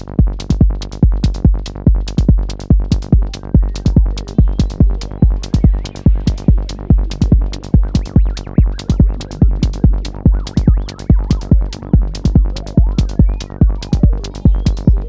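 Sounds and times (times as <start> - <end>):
hi-hat ticks: 0.0 - 15.0
kick drum: 0.0 - 15.0
synth bass: 0.0 - 15.0
gliding synth line: 4.2 - 14.8.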